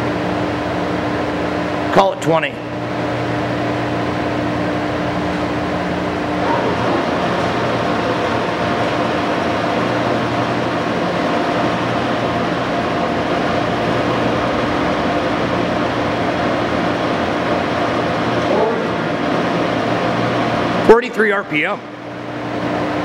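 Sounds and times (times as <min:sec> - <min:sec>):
lathe mechanical hum: 0:00.0 - 0:23.0.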